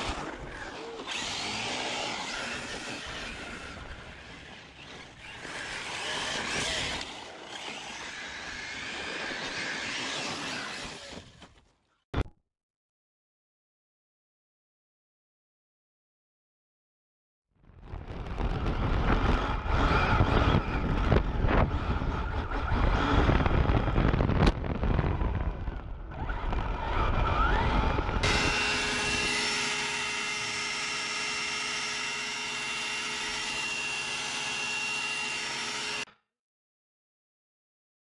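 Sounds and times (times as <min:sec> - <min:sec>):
electric motor whine: 0:00.0 - 0:11.2, 0:26.0 - 0:36.1
wind and road rumble: 0:00.0 - 0:11.8, 0:17.6 - 0:29.4.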